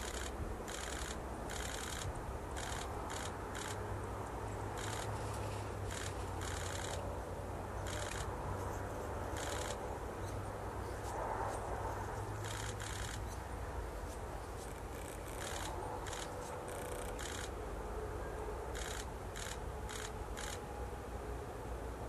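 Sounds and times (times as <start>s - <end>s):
fast high-pitched clicking: 0.0s - 3.8s, 4.8s - 5.2s, 5.9s - 7.1s, 7.8s - 9.8s, 12.4s - 13.4s, 14.6s - 17.6s, 18.8s - 20.6s
steady low hum: 0.0s - 22.0s.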